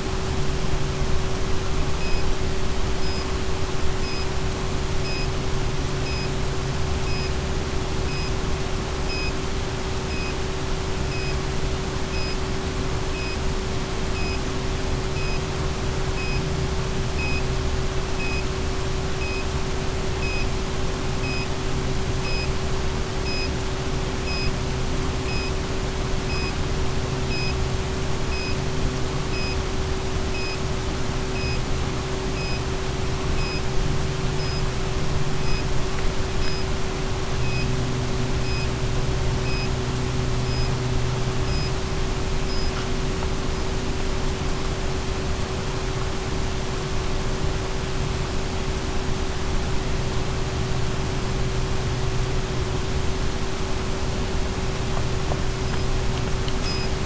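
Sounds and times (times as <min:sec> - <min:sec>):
constant hum: 0:00.0 - 0:57.0
static hiss: 0:00.0 - 0:57.0
short high beeps: 0:38.4 - 0:38.7, 0:56.6 - 0:56.9.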